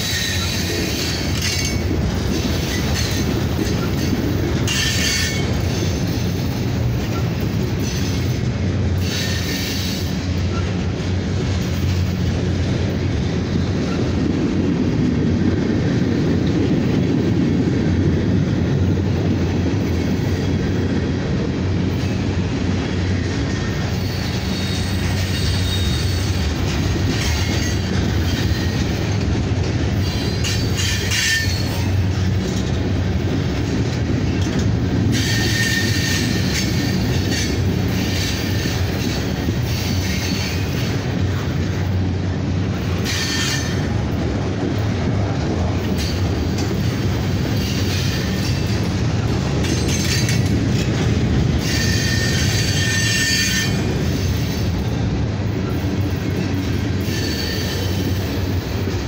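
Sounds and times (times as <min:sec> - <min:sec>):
train wheels rumbling on rail: 0:00.0 - 0:59.0
high-pitched wheel squeals: 0:23.9 - 0:26.4, 0:35.1 - 0:38.9, 0:51.6 - 0:54.7, 0:57.0 - 0:58.2.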